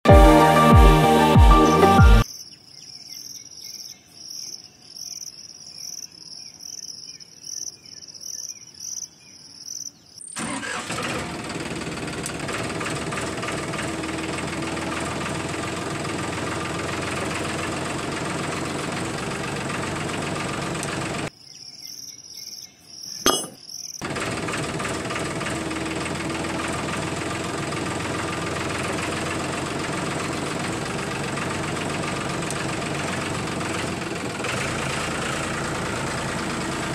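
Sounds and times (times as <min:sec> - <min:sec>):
engine running: 0:00.0 - 0:02.2, 0:10.4 - 0:21.3, 0:24.0 - 0:36.9
insects chirping: 0:02.2 - 0:10.8, 0:21.3 - 0:24.0.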